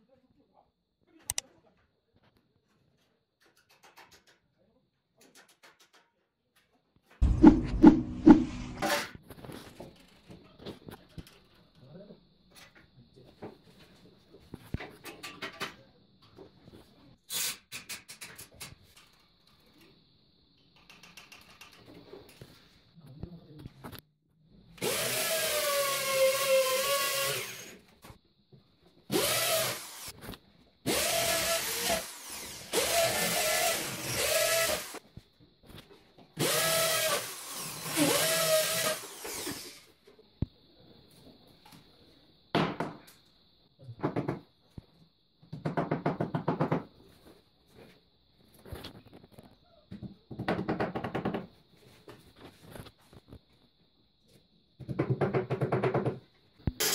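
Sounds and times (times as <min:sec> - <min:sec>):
hammer drill boring into concrete: 0:24.8 - 0:27.8, 0:29.1 - 0:30.2, 0:30.9 - 0:35.0, 0:36.4 - 0:39.9.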